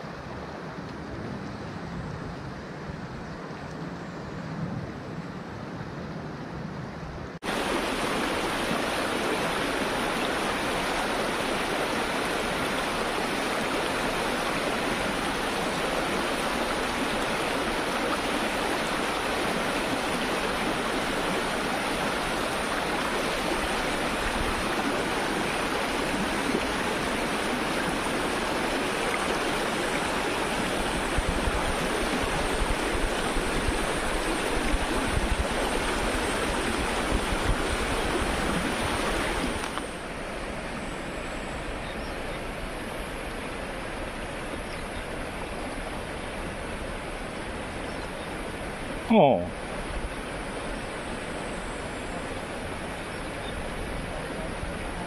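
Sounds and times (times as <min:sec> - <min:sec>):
river rapids rushing over stones: 0:07.4 - 0:40.7.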